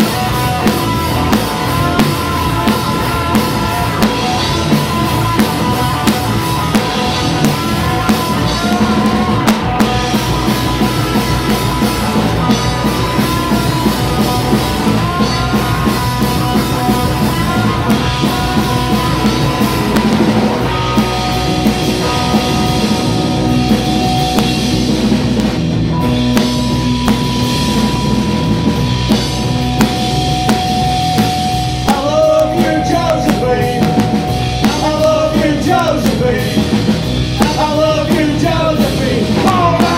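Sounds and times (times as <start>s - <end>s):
person singing: 0.0s - 11.6s, 31.8s - 36.8s, 37.4s - 39.9s
drum kit: 0.0s - 39.9s
electric guitars: 0.0s - 39.9s.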